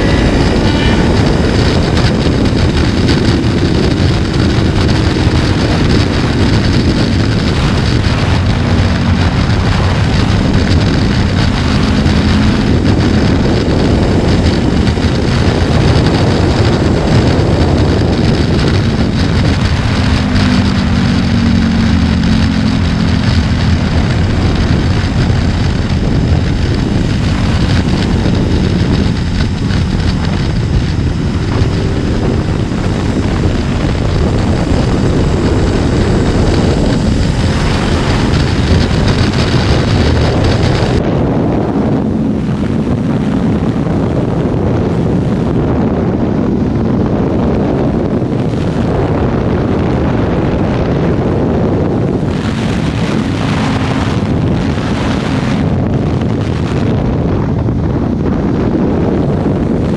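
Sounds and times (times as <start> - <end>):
faint motorcycle engine: 0.0 - 59.9
wind rushing over microphone: 0.0 - 59.9.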